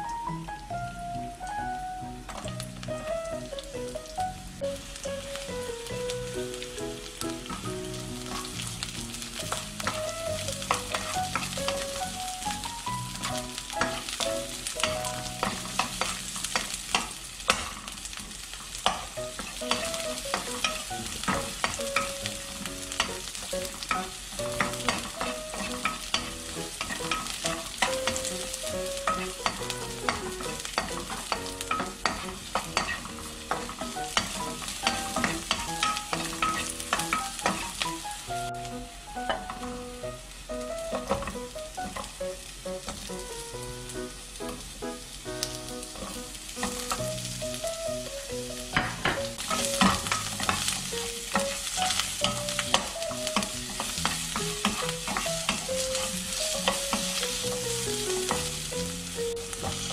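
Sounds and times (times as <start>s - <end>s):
vegetables sizzling in hot oil: 0.0s - 59.9s
wooden spatula tapping a pan: 18.8s - 37.8s, 40.9s - 42.2s, 48.6s - 57.5s.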